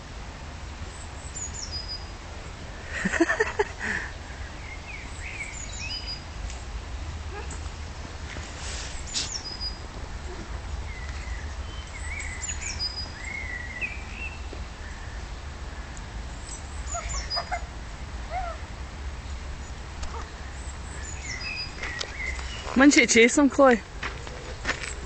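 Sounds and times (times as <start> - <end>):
birds chirping: 3.0 - 6.8, 8.8 - 18.6, 19.2 - 25.0.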